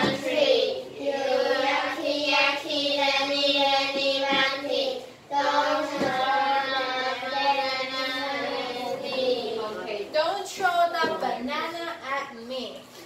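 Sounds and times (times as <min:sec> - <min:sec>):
children singing: 0:00.0 - 0:09.9.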